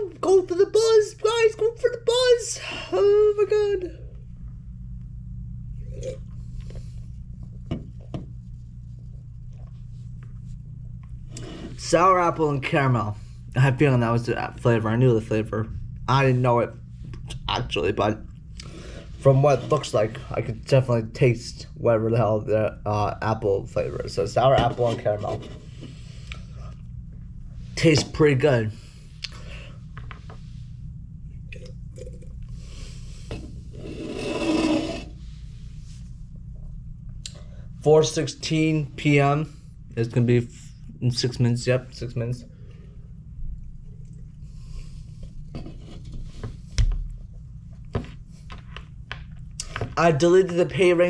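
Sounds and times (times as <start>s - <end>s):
low hum: 0.0s - 51.0s
man drinking: 5.8s - 8.1s, 31.4s - 35.1s, 43.6s - 45.2s.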